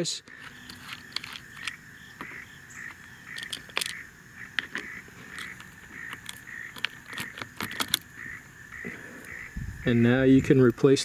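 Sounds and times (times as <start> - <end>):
plastic and metal clicks and scrapes: 0.3 - 8.1.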